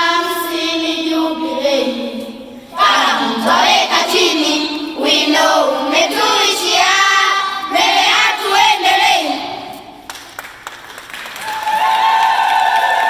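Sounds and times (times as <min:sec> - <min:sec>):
children singing in unison: 0:00.0 - 0:09.8.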